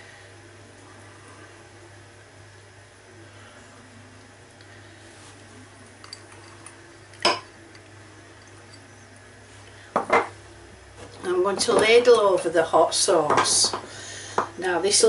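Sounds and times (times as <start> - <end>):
low steady hum: 0.0 - 15.0
china bowl clinking on ceramic dish: 6.0 - 7.5.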